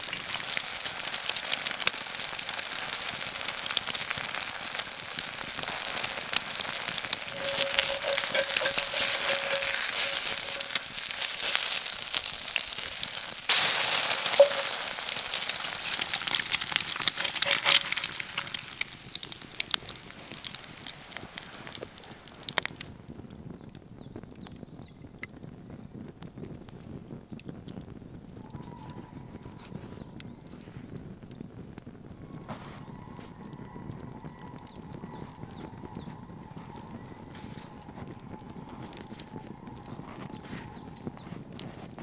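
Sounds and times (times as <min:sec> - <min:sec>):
eggs sizzling in a skillet: 0:00.0 - 0:23.0.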